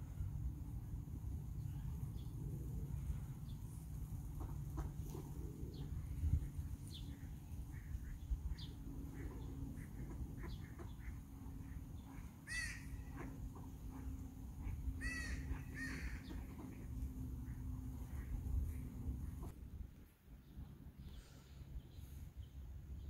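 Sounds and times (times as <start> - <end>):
low steady hum: 0.0 - 23.0
ducks and birds calling: 1.6 - 19.6.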